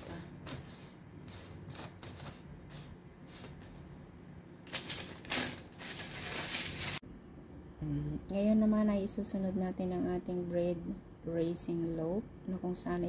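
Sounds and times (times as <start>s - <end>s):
loud rustling and scraping: 4.7s - 7.0s.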